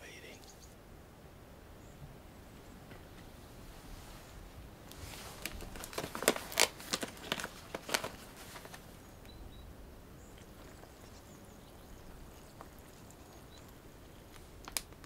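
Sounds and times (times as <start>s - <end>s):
plastic pouch crinkling: 4.9s - 8.9s, 14.2s - 15.0s.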